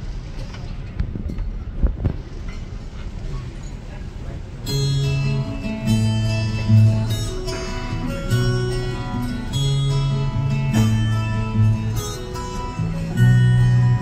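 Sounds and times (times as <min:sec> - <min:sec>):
slow instrumental melody: 0:04.7 - 0:14.0.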